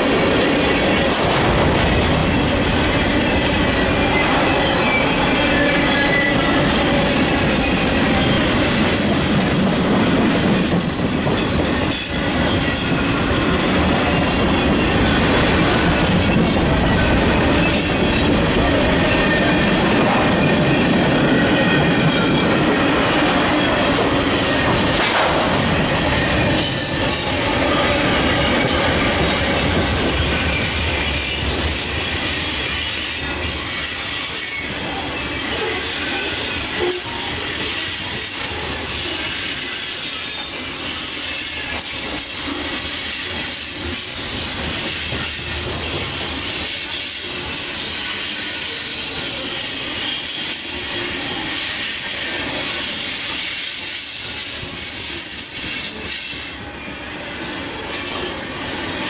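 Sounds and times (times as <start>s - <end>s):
train wheels clacking on rails: 0.0s - 56.6s
wheel squeal: 3.2s - 8.8s, 25.7s - 43.4s.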